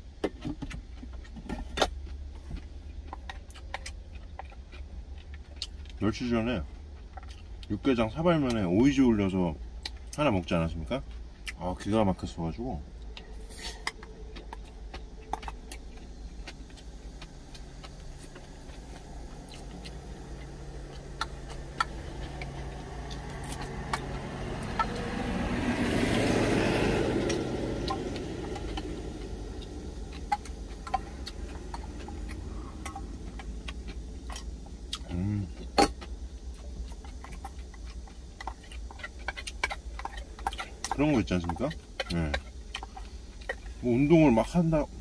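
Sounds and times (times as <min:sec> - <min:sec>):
steady low hum: 0:00.0 - 0:45.0
vehicle passing outside: 0:12.1 - 0:45.0.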